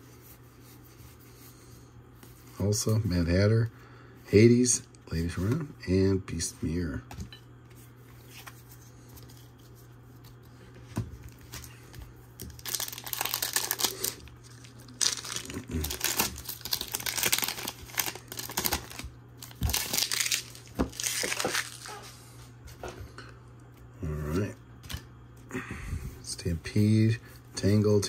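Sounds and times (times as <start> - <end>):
plastic wrapper tearing and crinkling: 12.4 - 22.1.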